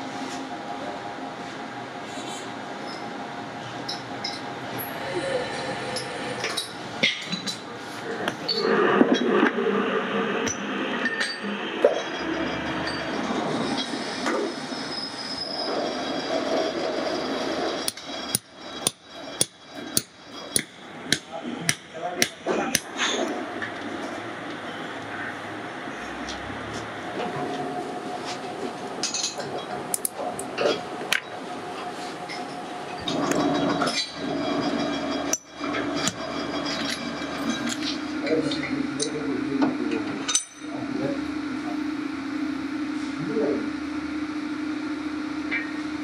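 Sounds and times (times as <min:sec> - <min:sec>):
steady background din: 0:03.7 - 0:46.0
machine motor humming: 0:08.1 - 0:29.0, 0:32.8 - 0:40.2.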